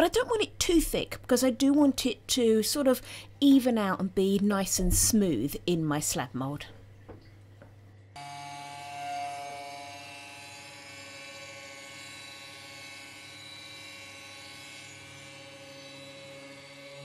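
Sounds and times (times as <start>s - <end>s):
stick blender motor whine: 8.2s - 17.0s.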